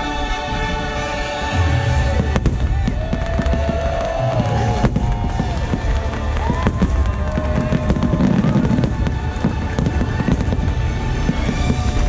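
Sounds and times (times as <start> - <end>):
music: 0.0 - 12.0
fireworks bangs and crackles: 0.2 - 12.0.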